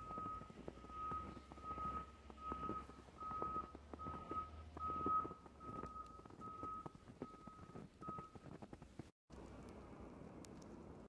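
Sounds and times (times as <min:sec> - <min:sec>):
vehicle reversing alarm beeping: 0:00.0 - 0:08.5
footsteps crunching in snow: 0:00.0 - 0:09.1.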